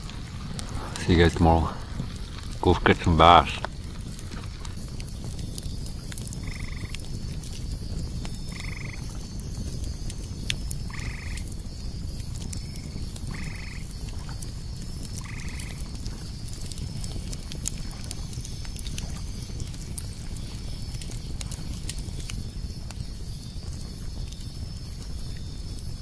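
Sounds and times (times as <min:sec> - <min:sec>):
low background noise: 0:00.0 - 0:06.7
frog croaking: 0:06.4 - 0:07.0, 0:08.5 - 0:09.1, 0:10.9 - 0:11.5, 0:13.3 - 0:13.9, 0:15.2 - 0:15.8.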